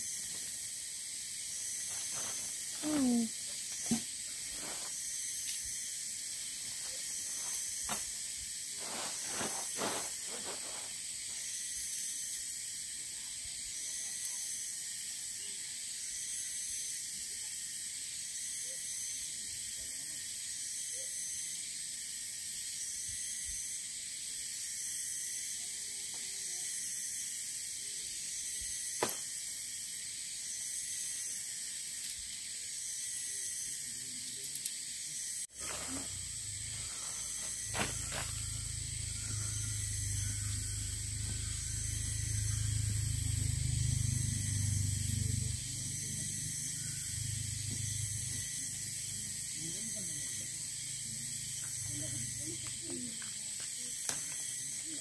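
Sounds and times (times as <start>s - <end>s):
crickets and night insects chirping: 0.0s - 55.0s
tent fabric rustling and flapping: 8.8s - 10.9s.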